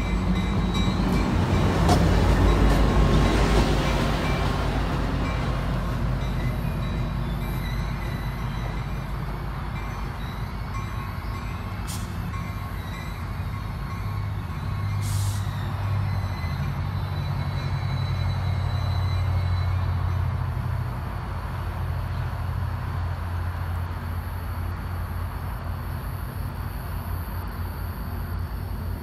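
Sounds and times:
locomotive engine humming: 0.0s - 29.0s
air release hisses: 15.0s - 15.5s.

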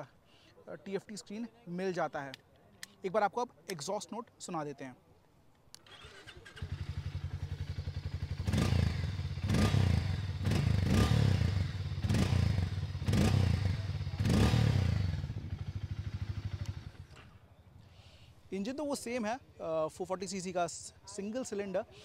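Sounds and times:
motorcycle engine idling and revving: 5.9s - 17.6s.

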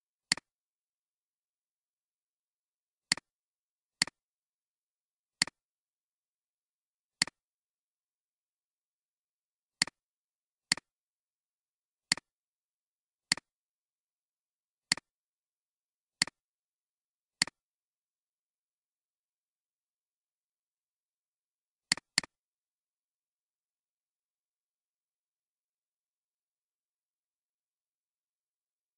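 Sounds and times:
computer mouse clicks: 0.3s - 0.5s, 13.3s - 13.5s, 14.9s - 15.1s, 21.9s - 22.4s.

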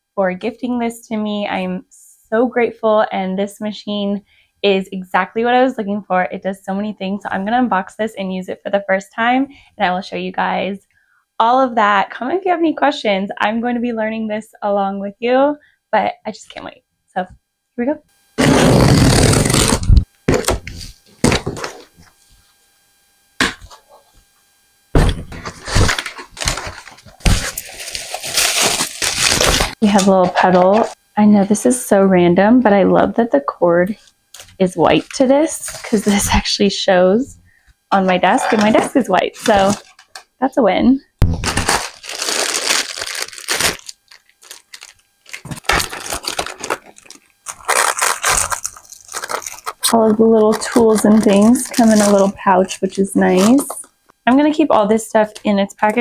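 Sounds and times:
cardboard ripping: 18.4s - 22.0s, 25.0s - 31.0s, 38.4s - 40.2s, 41.2s - 52.3s, 53.3s - 53.8s
cardboard flaps scuffing: 25.0s - 26.0s
plastic bags rustling: 25.3s - 31.0s, 38.0s - 40.2s, 41.3s - 53.9s.

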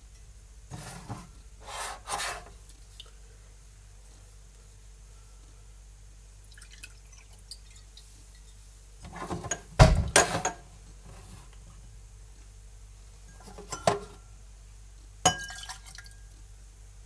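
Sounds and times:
glassware clinking on counter: 13.4s - 14.2s, 15.3s - 16.1s.

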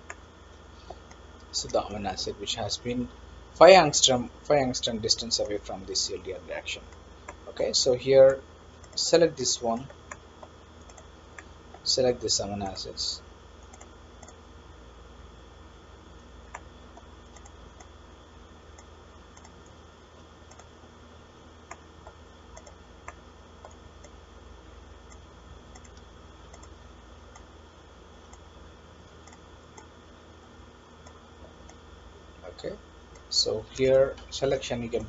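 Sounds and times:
steady low hum: 0.0s - 35.0s
computer mouse clicks: 8.8s - 9.0s, 9.8s - 11.8s, 13.6s - 14.4s, 16.5s - 17.9s, 18.7s - 19.8s, 20.5s - 20.7s, 21.7s - 24.2s, 25.1s - 27.5s, 29.2s - 29.9s, 31.0s - 31.8s.

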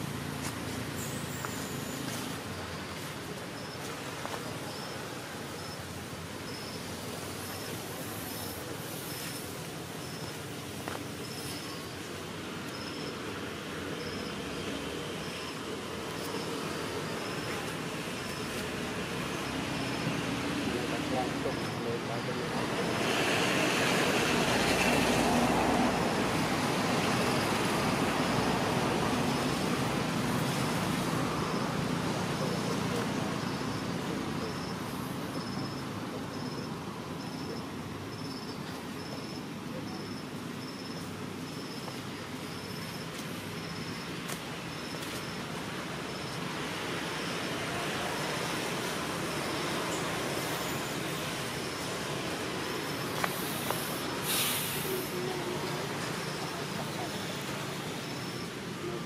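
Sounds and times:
rushing outdoor background noise: 0.0s - 59.0s
short high hiss: 53.2s - 55.2s.

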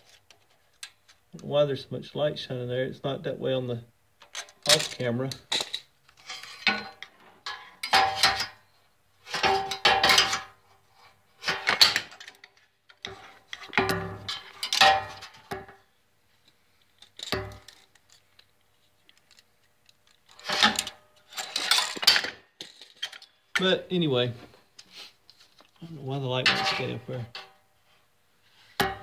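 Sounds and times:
metal tools clattering: 4.2s - 8.6s, 11.4s - 15.4s, 20.3s - 23.7s, 26.4s - 27.6s.

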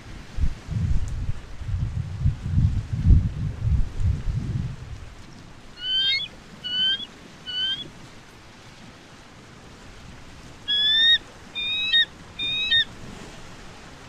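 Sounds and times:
eagle whistled calls: 5.8s - 7.9s, 10.7s - 12.9s.

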